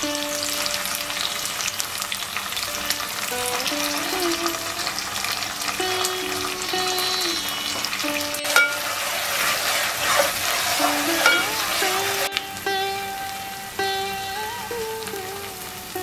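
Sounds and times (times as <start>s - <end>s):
paste sizzling in hot oil: 7.6s - 12.3s
spoon knocking against pot: 8.5s - 8.8s, 11.2s - 11.5s
metal spoon stirring: 8.5s - 12.0s.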